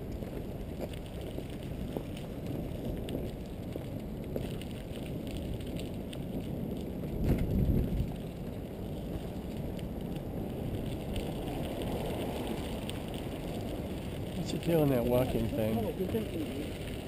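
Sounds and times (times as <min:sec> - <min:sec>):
bicycle tyres rumbling: 0:00.0 - 0:17.0
wind noise on microphone: 0:00.0 - 0:17.0.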